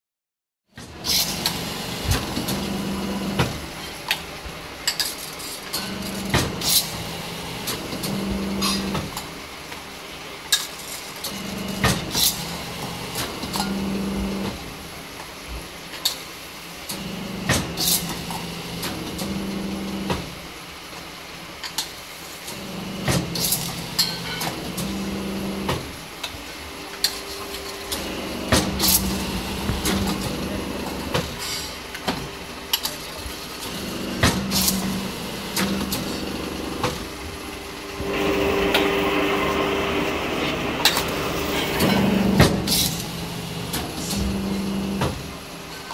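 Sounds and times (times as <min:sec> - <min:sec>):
beading machine motor hum: 0:33.6 - 0:45.0.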